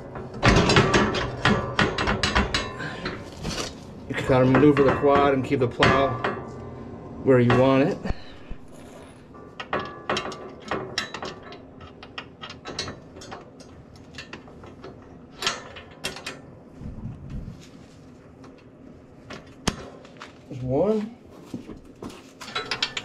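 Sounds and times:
metal clicks and clanks: 0.0 - 6.8, 9.3 - 16.5, 22.4 - 23.0.

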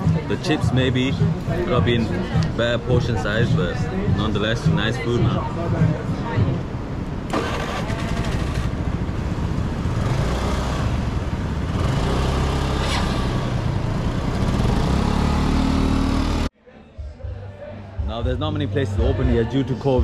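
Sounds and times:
scooter engines at low revs: 7.3 - 16.5.

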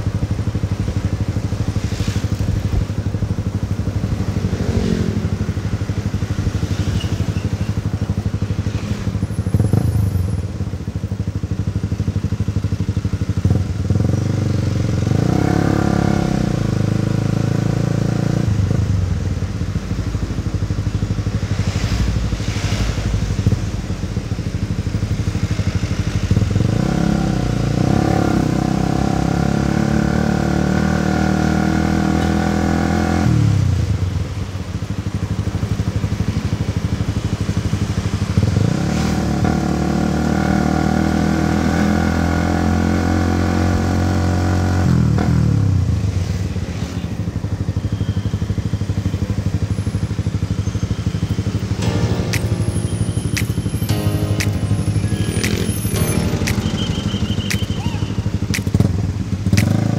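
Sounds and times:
motorcycle engine revving: 0.0 - 34.3, 51.4 - 59.9.

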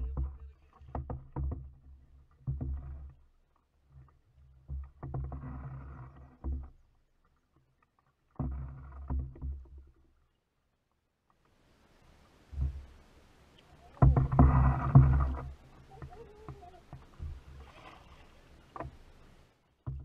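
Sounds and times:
paddle strokes splashing: 0.0 - 10.6, 11.6 - 20.0
deep thumps and knocks: 13.9 - 17.8.

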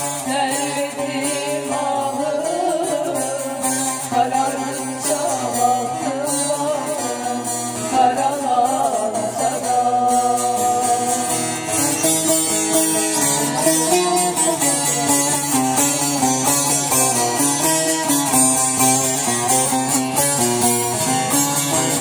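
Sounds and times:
woman singing a folk song: 0.0 - 12.0.

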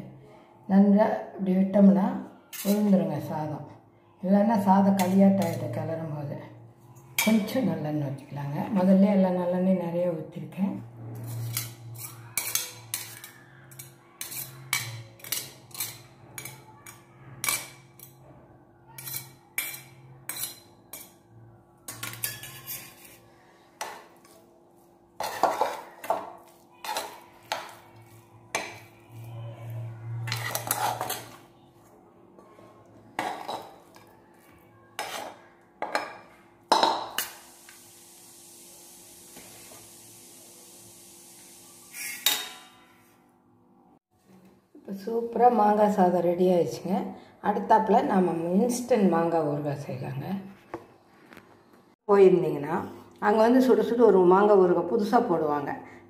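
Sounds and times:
steel spoon scraping and clinking metal: 2.5 - 3.0, 11.2 - 18.2, 18.9 - 21.3, 21.9 - 24.4, 25.2 - 31.7, 41.8 - 43.0.

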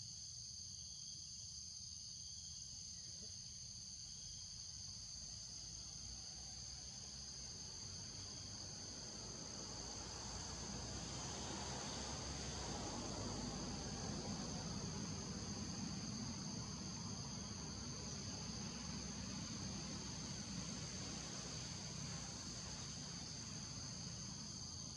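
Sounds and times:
faint low rumble and hiss: 0.0 - 24.9
insects droning: 0.0 - 24.9.

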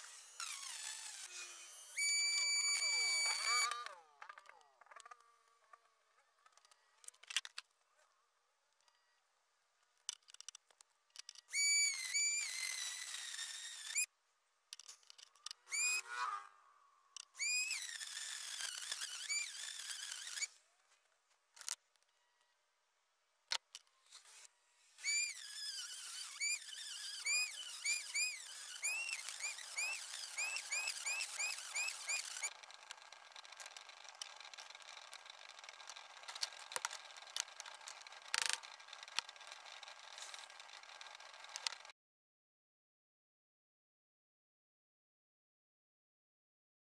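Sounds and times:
rotary tool cutting metal: 0.0 - 5.0, 11.2 - 14.1, 14.8 - 16.6, 17.2 - 20.6, 23.5 - 41.9.

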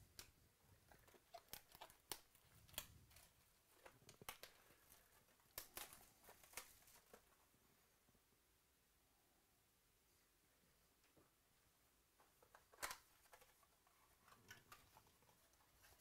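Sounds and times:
wrapper crinkling and tearing: 0.9 - 7.2.

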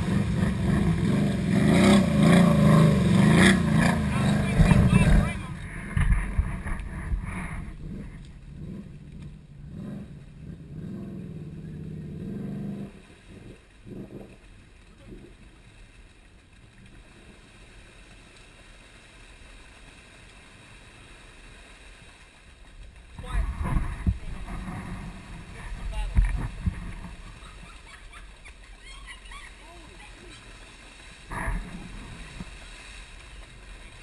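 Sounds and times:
distant quad engine revving: 0.0 - 15.4, 23.2 - 34.0.

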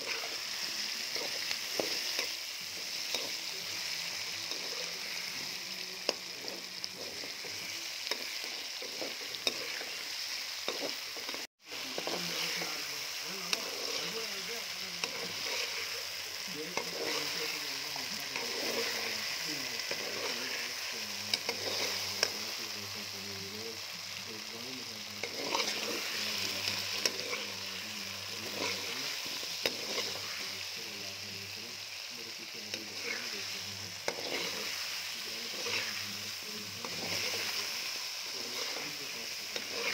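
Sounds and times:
food sizzling in hot oil: 0.0 - 39.9
spatula scraping a metal pot: 6.1 - 10.1, 15.0 - 16.1, 16.8 - 17.6, 25.2 - 27.5, 34.0 - 34.8.

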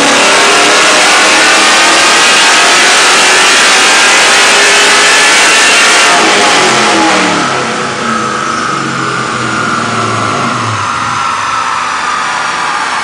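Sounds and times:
engine revving and winding down: 0.0 - 13.0.

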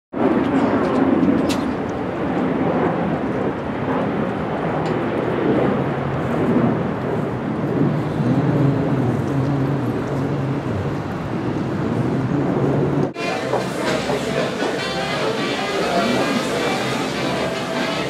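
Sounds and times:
traffic din: 6.3 - 18.0
music: 13.2 - 18.0.

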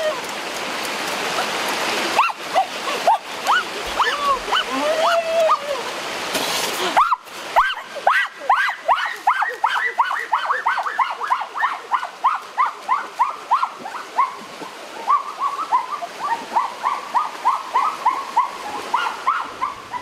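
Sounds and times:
small dog yapping: 15.1 - 20.0.

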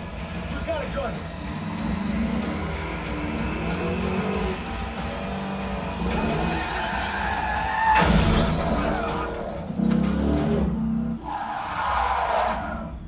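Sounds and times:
car engines: 0.0 - 13.0
film music score: 0.0 - 13.0
loud hit: 7.9 - 9.1.

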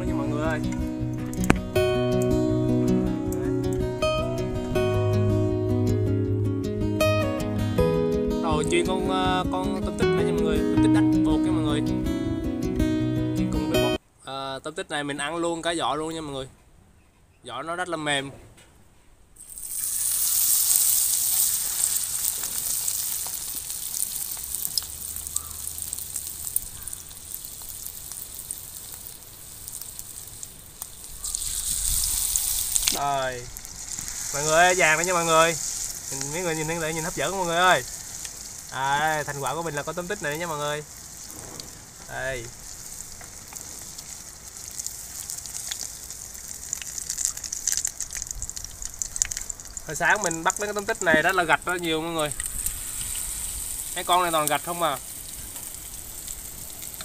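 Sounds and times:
food deep-frying in oil: 19.4 - 57.0.

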